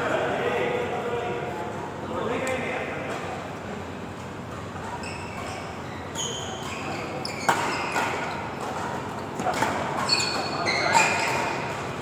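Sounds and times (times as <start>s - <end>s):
shoes squeaking on court: 4.2s - 12.0s.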